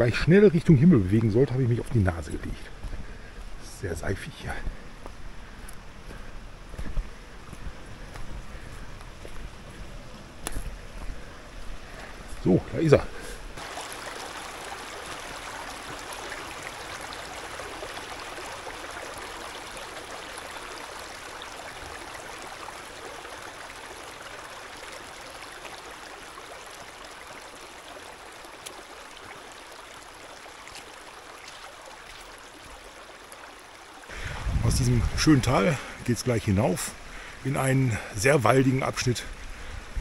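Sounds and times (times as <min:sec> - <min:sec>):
brook trickling over stones: 0:00.0 - 0:04.8, 0:06.8 - 0:40.0.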